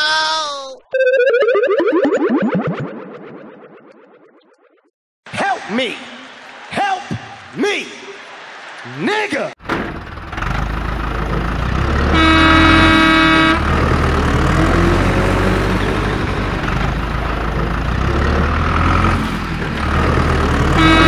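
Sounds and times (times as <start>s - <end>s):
heavy vehicle engine rumbling: 9.6s - 21.0s
vehicle horn: 12.1s - 13.9s, 20.7s - 21.0s.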